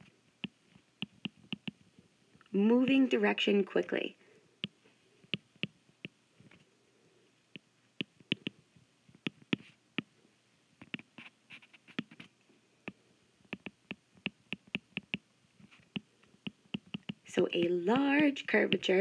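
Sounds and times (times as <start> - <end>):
stylus tapping on tablet screen: 0.0 - 1.9, 4.6 - 6.2, 7.6 - 10.1, 10.8 - 12.3, 12.9 - 19.0.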